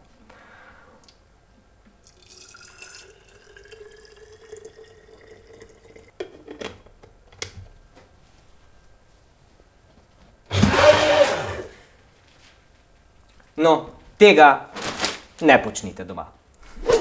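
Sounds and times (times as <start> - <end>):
water pouring into glass jar: 2.0 - 6.2.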